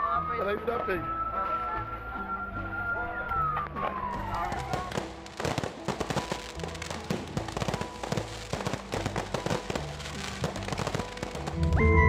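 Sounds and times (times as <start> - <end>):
background music with held notes: 0.0 - 12.0
fireworks bangs and crackles: 0.0 - 12.0.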